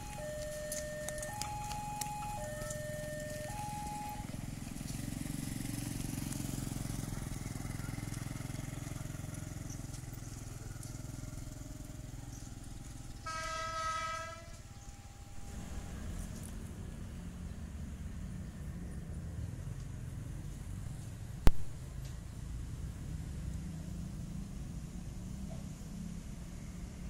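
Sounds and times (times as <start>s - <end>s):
train rumbling: 12.9s - 18.8s
train horn blast: 13.2s - 16.2s.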